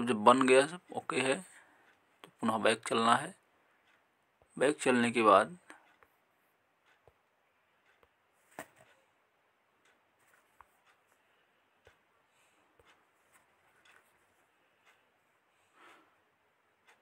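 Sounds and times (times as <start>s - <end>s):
soft clicks: 9.8s - 15.1s.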